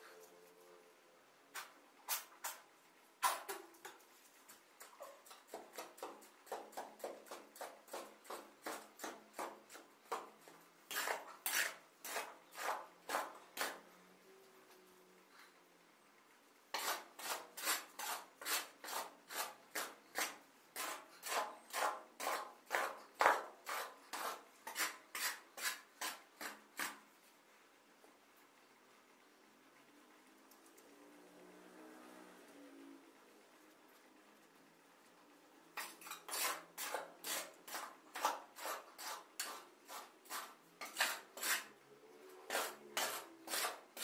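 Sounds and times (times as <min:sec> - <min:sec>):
shovel scraping concrete and sand: 0:01.5 - 0:13.9, 0:16.7 - 0:27.1, 0:35.8 - 0:44.0.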